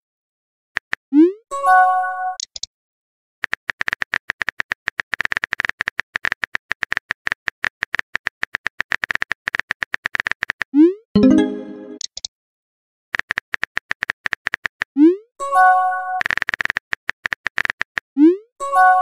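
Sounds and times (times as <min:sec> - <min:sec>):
message chime: 0:11.2 - 0:12.0.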